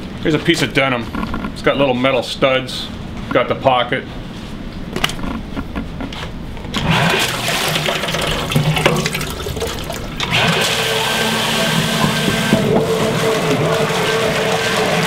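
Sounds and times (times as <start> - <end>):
submersible pump running: 6.7 - 15.0
water rushing and churning: 6.8 - 15.0.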